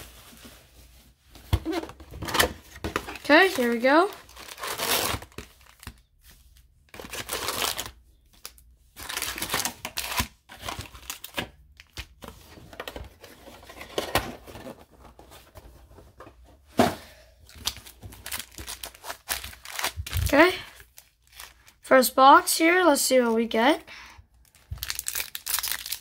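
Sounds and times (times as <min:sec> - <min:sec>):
plastic wrapping crinkling: 0:02.9 - 0:06.0, 0:06.9 - 0:12.0, 0:17.5 - 0:21.9, 0:24.4 - 0:26.0.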